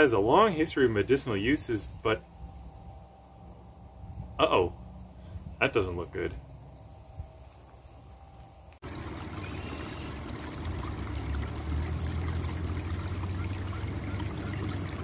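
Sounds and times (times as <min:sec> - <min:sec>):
low rumble: 0:00.8 - 0:13.8
stream trickling over rocks: 0:08.8 - 0:15.0.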